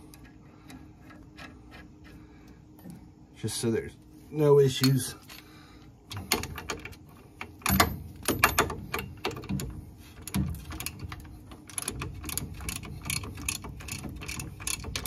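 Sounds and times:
ratchet wrench clicking: 10.2 - 15.0.

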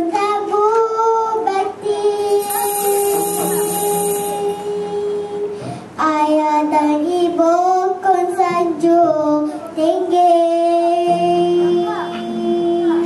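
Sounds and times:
child singing into a microphone: 0.0 - 13.0.

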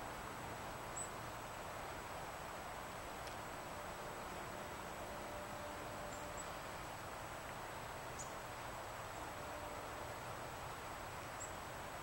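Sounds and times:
steady outdoor hiss: 0.0 - 12.0
faint high bird chirps: 5.3 - 6.8, 7.8 - 8.5, 11.3 - 11.6.

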